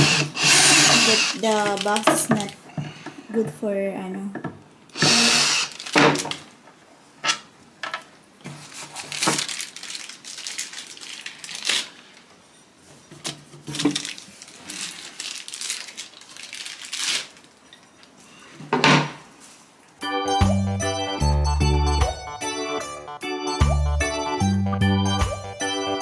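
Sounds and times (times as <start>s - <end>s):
plastic bag rustling: 1.1s - 2.7s, 5.6s - 6.5s, 8.4s - 18.6s.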